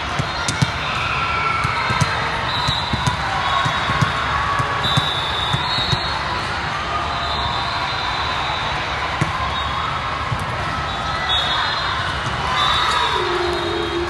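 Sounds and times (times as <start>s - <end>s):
volleyballs thudding: 0.0s - 1.0s, 1.6s - 6.2s
voices in a large hall: 0.0s - 14.0s.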